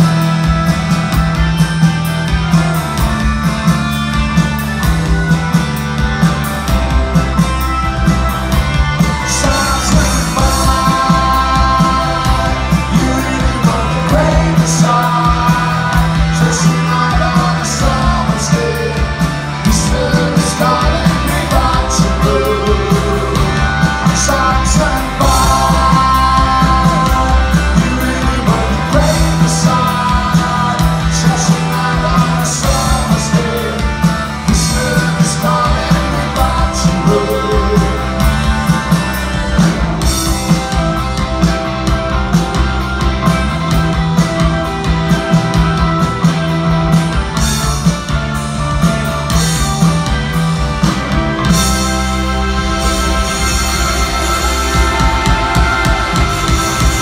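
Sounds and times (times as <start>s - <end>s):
rock band playing live: 0.0s - 57.0s
man singing lead vocals: 9.2s - 38.6s.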